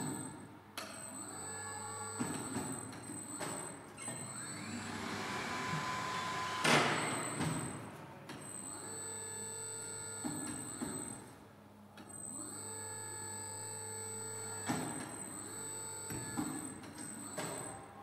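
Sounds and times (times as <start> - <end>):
tyre changer motor whine: 3.4 - 11.1
machine clunks and knocks: 6.5 - 7.8.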